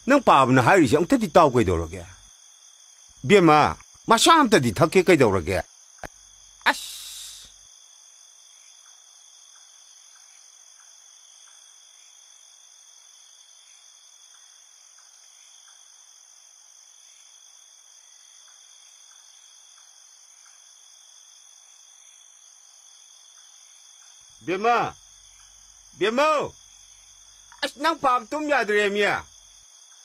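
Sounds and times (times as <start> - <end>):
crickets chirring: 0.0 - 30.0.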